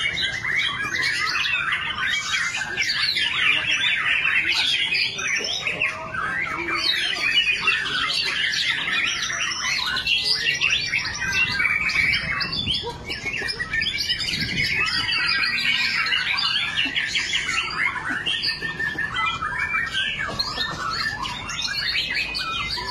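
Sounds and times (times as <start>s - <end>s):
chorus of caged songbirds: 0.0s - 22.9s
songbird singing chirps and whistles: 0.0s - 22.9s.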